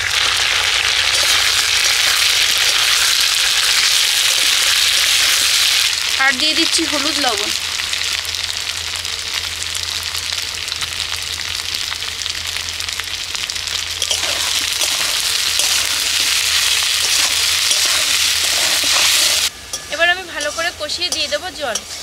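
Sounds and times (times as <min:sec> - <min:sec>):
vegetables sizzling in oil: 0:00.0 - 0:22.0
metal spatula stirring: 0:01.1 - 0:05.2, 0:14.0 - 0:22.0.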